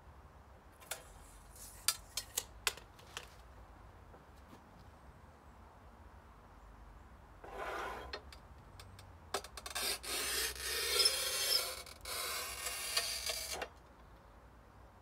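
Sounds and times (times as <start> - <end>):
cutting wheel scraping glass: 7.4 - 8.2, 9.6 - 13.7.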